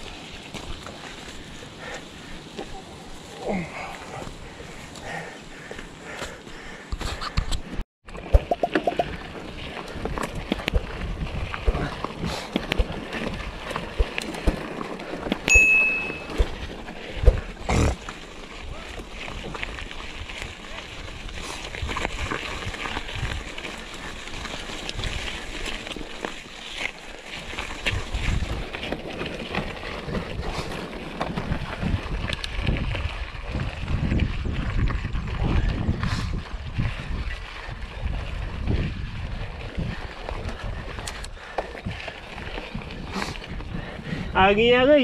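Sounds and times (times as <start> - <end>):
bike rattling over stones: 0.0 - 7.2, 8.1 - 45.0
wind rumble on microphone: 8.4 - 14.5, 18.6 - 25.8, 27.6 - 45.0.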